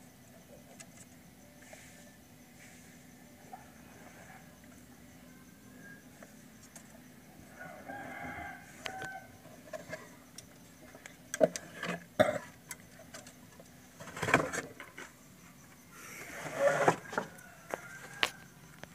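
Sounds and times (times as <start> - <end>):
rooster crowing faintly: 7.4 - 9.4, 16.8 - 18.8.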